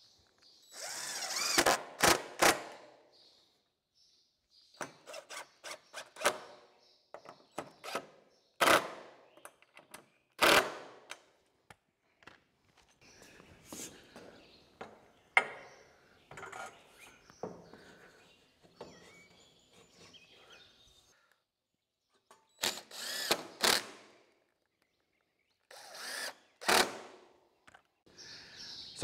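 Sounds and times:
cordless drill whining: 0.7s - 2.2s, 22.6s - 23.9s, 25.7s - 26.9s.

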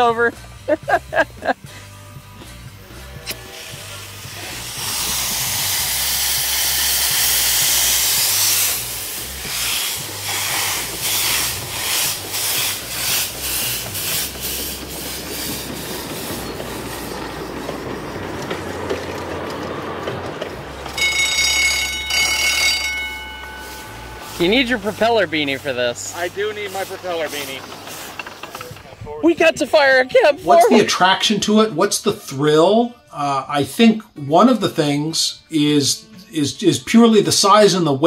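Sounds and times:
steam locomotive chuffing: 0.0s - 30.5s
steam locomotive hissing: 0.0s - 32.4s
steam whistle: 21.0s - 25.0s.

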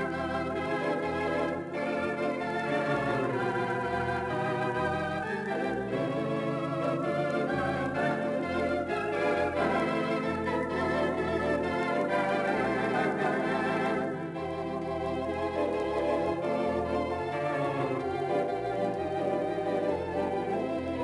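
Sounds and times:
theatre organ playing: 0.0s - 21.0s.

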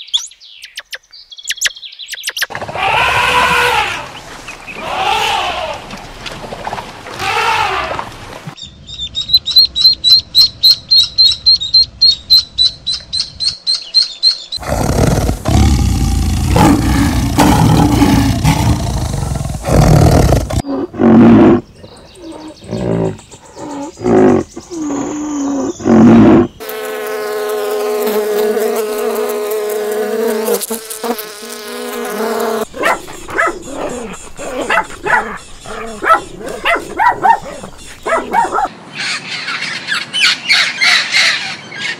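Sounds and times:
loud low animal call: 2.5s - 4.2s, 4.8s - 5.9s, 14.6s - 21.6s
ducks quacking: 32.7s - 38.7s
small dogs yapping: 32.7s - 38.7s.

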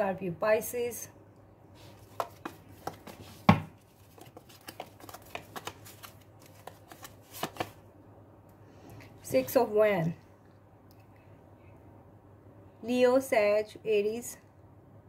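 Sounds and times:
cards being shuffled: 1.8s - 7.8s.

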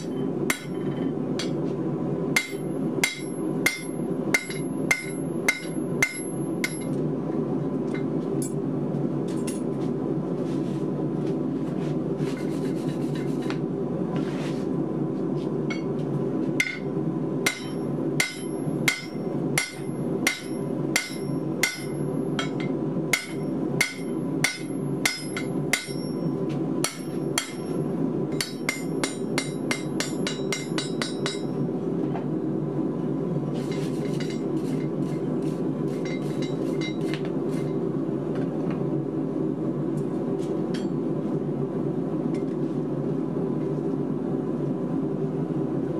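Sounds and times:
hammer ringing on hot steel: 0.0s - 1.6s, 2.4s - 7.0s, 15.7s - 15.9s, 16.6s - 16.9s, 17.5s - 31.6s, 35.9s - 37.8s.

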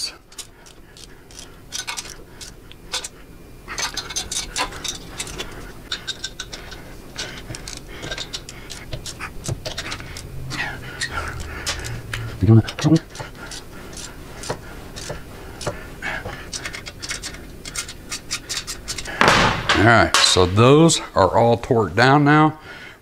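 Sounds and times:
torque wrench clicking: 0.3s - 3.2s, 3.8s - 15.8s.

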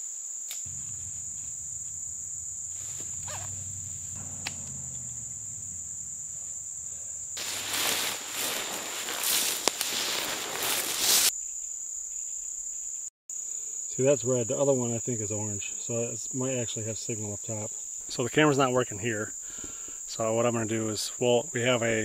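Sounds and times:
crickets chirping: 0.0s - 22.0s
footsteps through dry grass: 7.4s - 11.3s.

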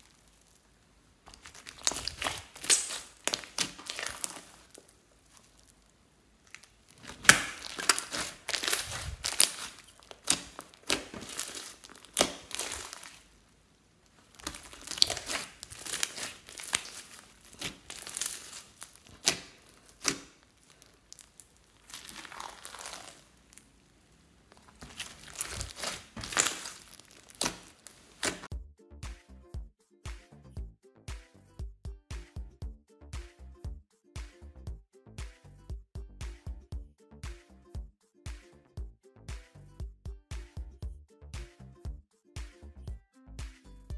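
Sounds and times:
slime squishing and crackling: 0.0s - 28.5s.

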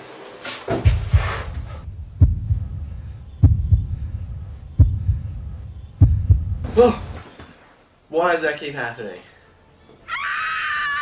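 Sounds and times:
heartbeat double thud: 0.8s - 7.2s
low rumbling hum: 0.9s - 7.2s.

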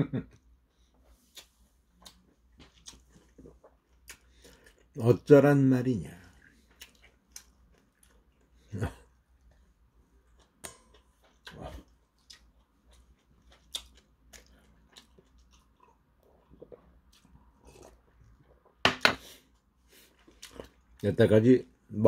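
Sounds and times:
person chewing and swallowing: 1.2s - 5.0s, 6.3s - 18.8s, 20.0s - 21.0s.

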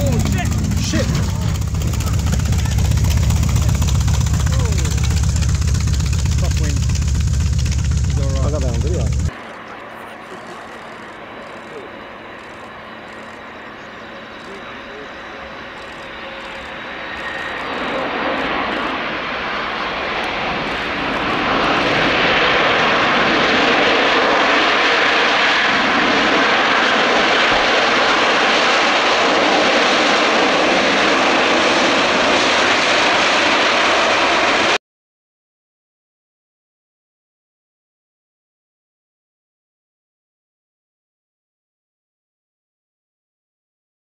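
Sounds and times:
jet engines running: 0.0s - 34.8s.

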